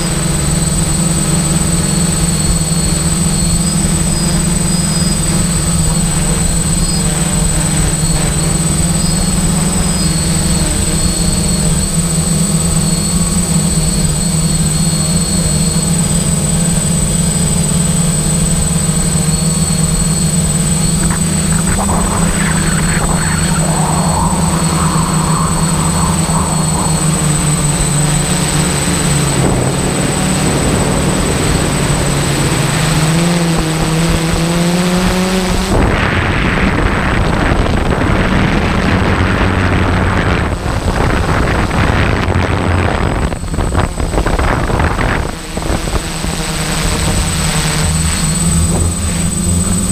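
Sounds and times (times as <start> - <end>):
engine running steadily: 0.0 - 37.8.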